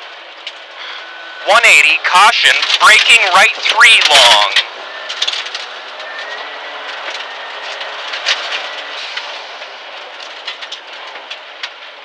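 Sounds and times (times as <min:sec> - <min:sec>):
car engine running at speed: 0:00.0 - 0:12.0
road noise: 0:00.0 - 0:12.0.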